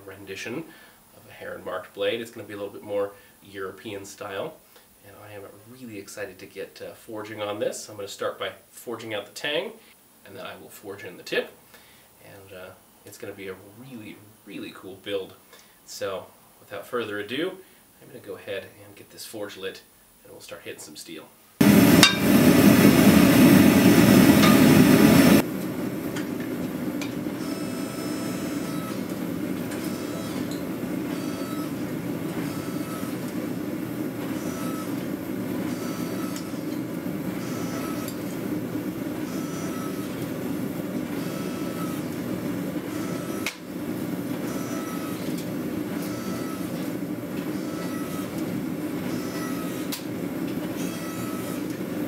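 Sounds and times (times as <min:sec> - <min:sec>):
forging press rumbling: 0:21.6 - 0:38.0
gas burner roaring: 0:21.6 - 0:52.0.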